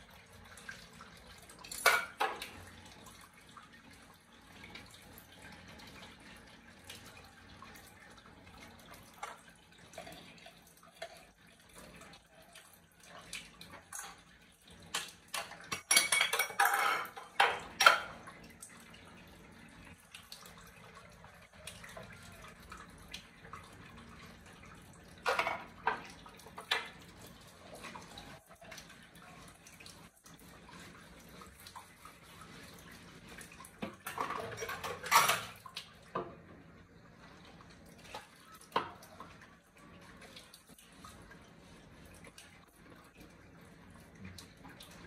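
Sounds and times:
faint water trickle: 0:00.0 - 0:45.0
dishes clinking and clattering: 0:01.6 - 0:02.7, 0:13.7 - 0:18.3, 0:25.2 - 0:27.0, 0:33.8 - 0:36.4.

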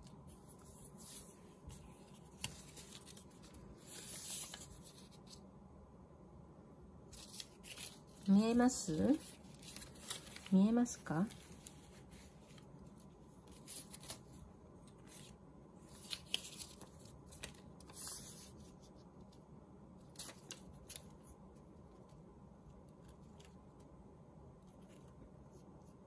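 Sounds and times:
faint room hiss: 0:00.0 - 0:26.0
paper rustling and scraping: 0:00.3 - 0:05.4, 0:07.1 - 0:19.0.

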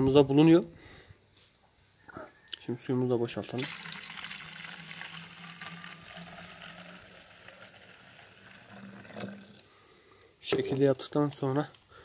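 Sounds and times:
water pouring into plastic tank: 0:03.6 - 0:09.7.

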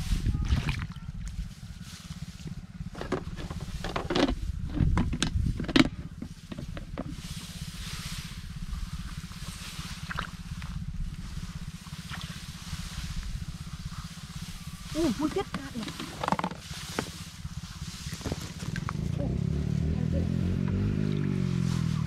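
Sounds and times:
wind rumble on microphone: 0:00.0 - 0:22.0
plants rustling and swishing: 0:06.2 - 0:19.2, 0:21.2 - 0:22.0.

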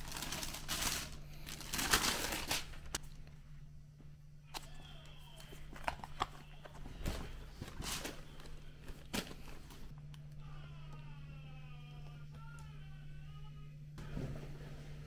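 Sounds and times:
tissue paper rustling: 0:00.0 - 0:03.0, 0:05.8 - 0:09.9.

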